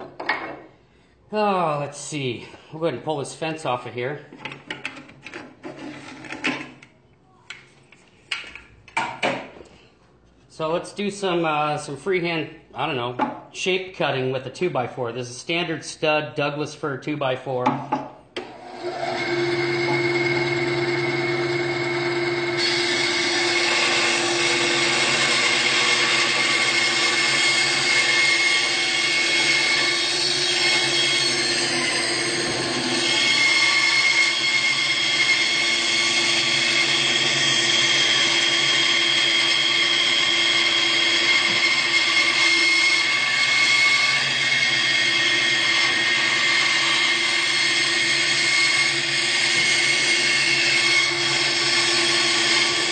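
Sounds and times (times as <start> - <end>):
saw blade cutting wood: 18.4 - 52.9
band saw motor hum: 18.6 - 52.9.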